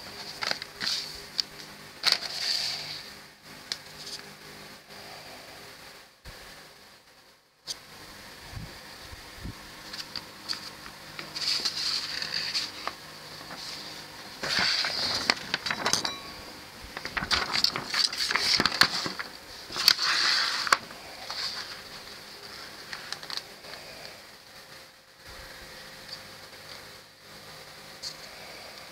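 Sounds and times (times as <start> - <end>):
booklet pages rustling: 0.0 - 3.0, 9.8 - 16.2, 16.9 - 23.5.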